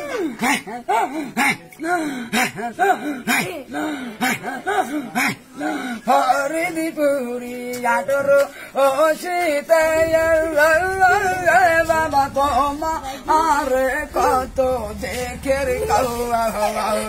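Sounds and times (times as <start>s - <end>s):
man singing wordless melody: 0.0s - 17.0s
low hum: 9.8s - 17.0s.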